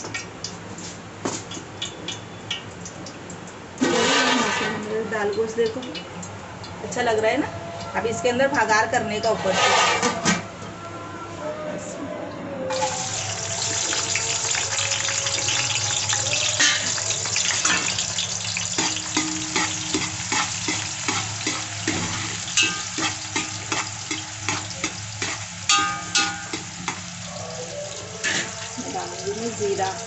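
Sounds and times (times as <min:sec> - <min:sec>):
onions sizzling in hot oil: 0:12.7 - 0:30.0
metal spoon clinking against pot: 0:16.2 - 0:27.1.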